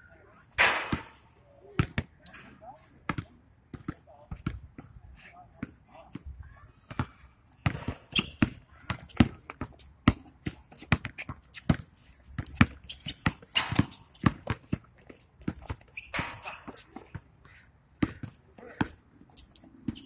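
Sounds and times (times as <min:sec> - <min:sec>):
basketball bouncing on hard court: 0:06.9 - 0:17.2, 0:18.0 - 0:19.0.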